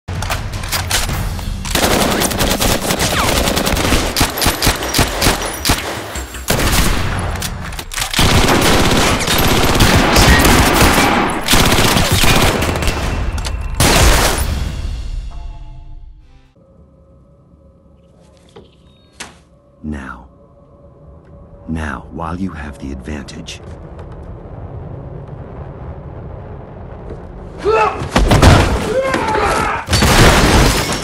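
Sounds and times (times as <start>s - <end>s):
machine-gun fire: 1.7s - 7.3s, 8.2s - 13.2s
low rumble: 20.2s - 27.6s.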